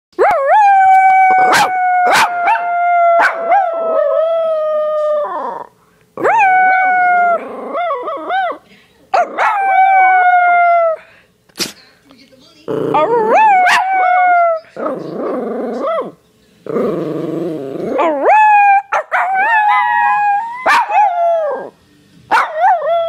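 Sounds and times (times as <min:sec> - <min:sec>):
dog howling: 0:00.2 - 0:08.6, 0:12.9 - 0:16.2, 0:17.5 - 0:23.0.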